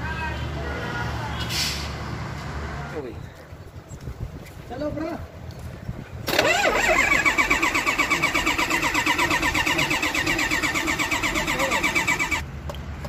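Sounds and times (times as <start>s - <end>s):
starter cranking diesel engine: 6.2s - 12.4s.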